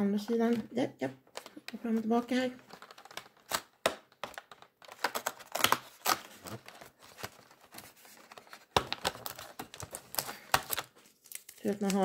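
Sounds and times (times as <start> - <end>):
cardboard crackling and tearing: 2.8 - 12.0.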